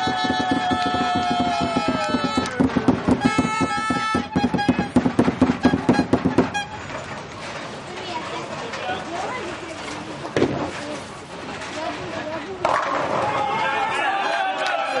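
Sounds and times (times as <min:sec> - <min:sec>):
fast rhythmic clapping: 0:00.0 - 0:06.6
fan horns blowing: 0:00.0 - 0:07.2
crowd voices: 0:00.0 - 0:15.0.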